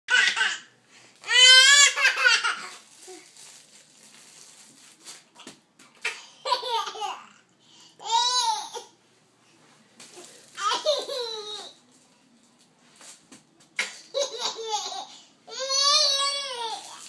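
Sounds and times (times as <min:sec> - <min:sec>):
baby laughing: 0:01.6 - 0:02.8, 0:06.0 - 0:07.4, 0:10.6 - 0:11.8, 0:13.8 - 0:16.8.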